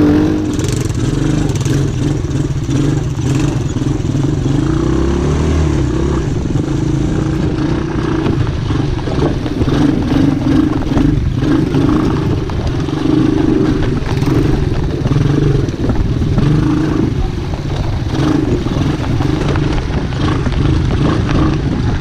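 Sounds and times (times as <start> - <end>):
atv engine revving: 0.0 - 22.0.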